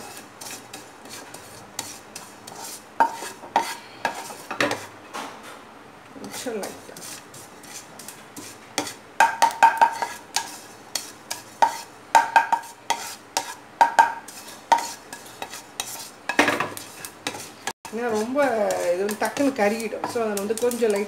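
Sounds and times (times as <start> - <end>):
ladle scraping and clinking on pan: 6.2 - 21.0.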